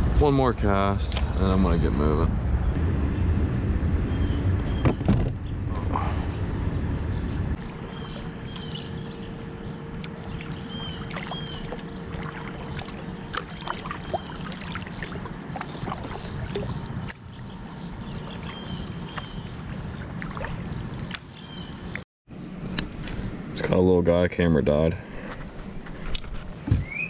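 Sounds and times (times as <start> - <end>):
paddle pulling through water: 7.6 - 21.9
water dripping from paddle: 10.0 - 21.3.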